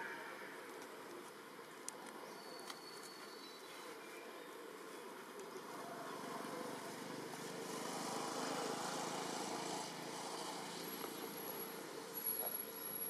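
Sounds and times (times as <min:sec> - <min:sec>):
vehicle passing by: 0:05.9 - 0:12.2.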